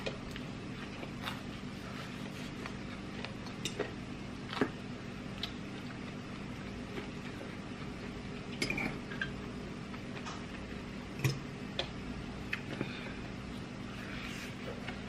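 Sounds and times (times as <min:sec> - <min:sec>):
mouth clicks and chewing: 0:02.6 - 0:06.2.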